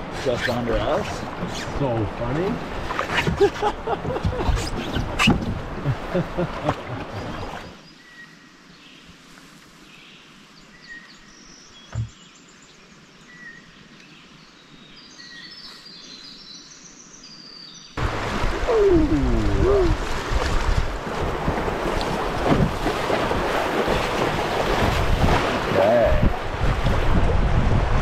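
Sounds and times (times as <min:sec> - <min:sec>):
rushing water splashing: 0:00.0 - 0:07.8, 0:18.0 - 0:28.0
dull thump: 0:11.9 - 0:12.2.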